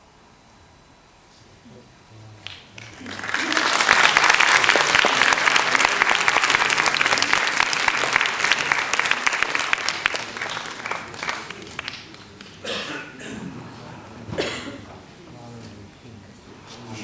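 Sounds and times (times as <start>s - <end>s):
audience applauding: 2.4s - 12.7s.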